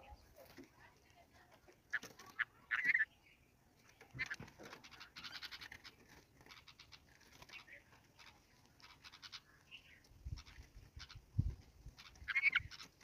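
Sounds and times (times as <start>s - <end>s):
bird chirping call: 1.9s - 13.0s.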